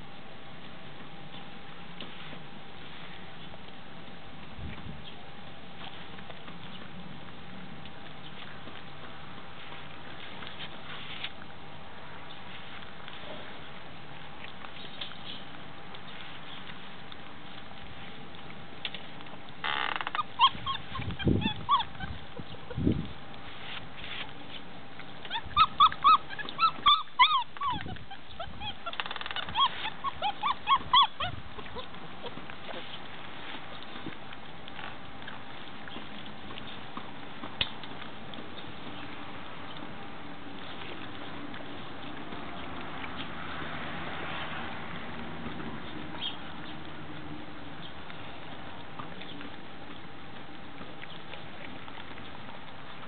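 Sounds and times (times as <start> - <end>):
puppies chewing and lapping: 0.0 - 53.0
puppies whimpering: 19.7 - 23.0, 25.1 - 33.1.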